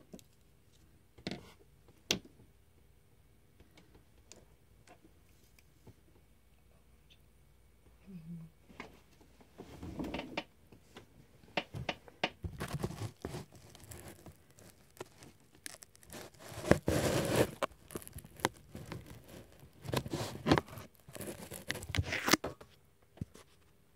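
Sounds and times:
handling rustling and scraping: 12.4 - 23.8.

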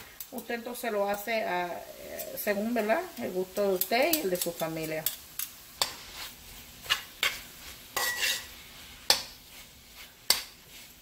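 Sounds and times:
meat sizzling in oil: 0.0 - 11.0
metal spoon scraping a pot: 8.0 - 8.6.

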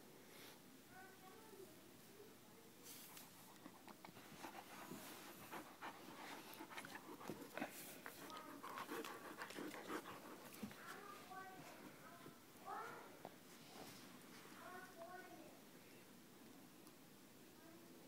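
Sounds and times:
puppy panting: 3.1 - 11.7.

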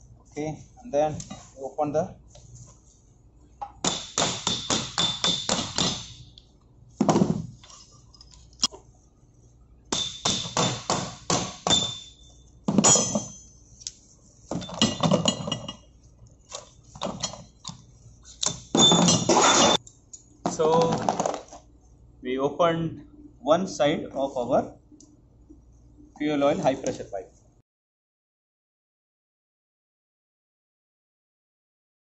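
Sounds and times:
hammer striking metal spanner: 3.8 - 6.2, 9.9 - 13.5, 18.4 - 19.8.

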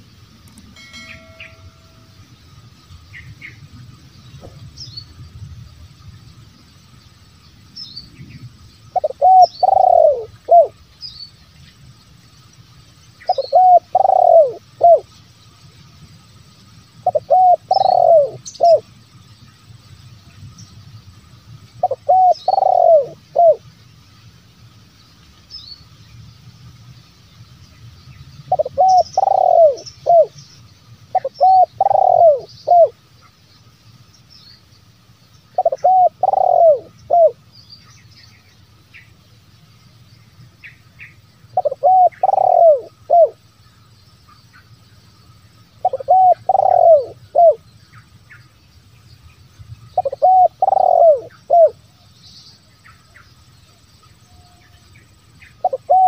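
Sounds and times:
dove cooing: 9.0 - 10.8, 13.3 - 15.1, 17.0 - 18.8, 21.8 - 23.6, 28.5 - 30.4, 31.1 - 33.0, 35.6 - 37.4, 41.6 - 43.4, 45.8 - 47.6, 50.0 - 51.8, 55.6 - 56.0.

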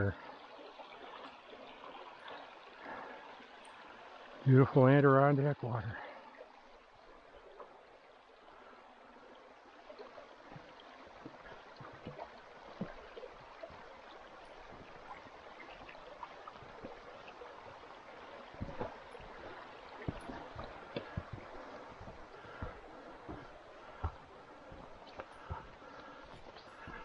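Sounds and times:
stream trickling over rocks: 0.0 - 27.0
footsteps on log footbridge: 10.5 - 27.0.

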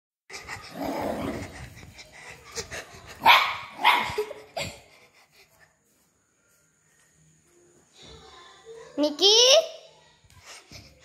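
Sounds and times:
small dog barking: 3.2 - 4.3.

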